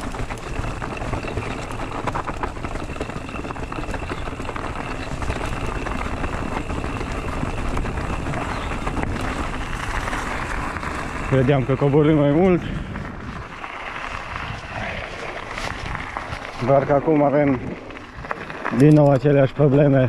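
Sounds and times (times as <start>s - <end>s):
knocks and rattles over roots: 0.0s - 13.4s
bike rolling over rough path: 0.0s - 20.0s.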